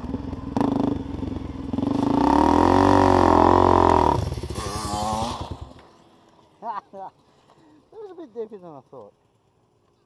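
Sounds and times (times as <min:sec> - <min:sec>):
dirt bike engine revving: 0:00.0 - 0:06.0.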